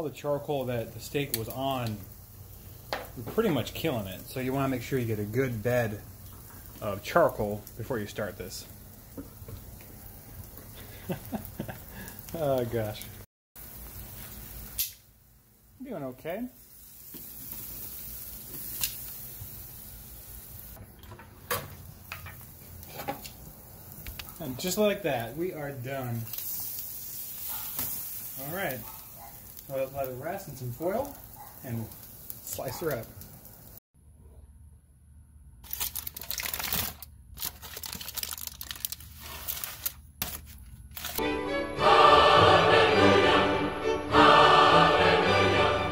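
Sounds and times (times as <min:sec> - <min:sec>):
aluminium foil crinkling: 0:21.9 - 0:33.8, 0:35.6 - 0:41.2.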